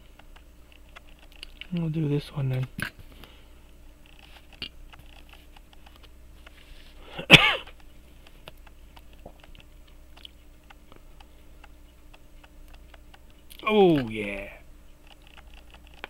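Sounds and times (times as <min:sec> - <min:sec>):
small tools clicking on watch: 0:04.0 - 0:06.6, 0:14.9 - 0:16.0
person coughing: 0:07.1 - 0:07.7.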